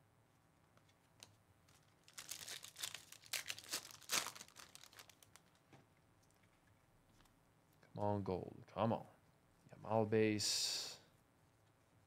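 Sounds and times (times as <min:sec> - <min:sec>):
foil wrapper tearing and crinkling: 0:01.7 - 0:05.6.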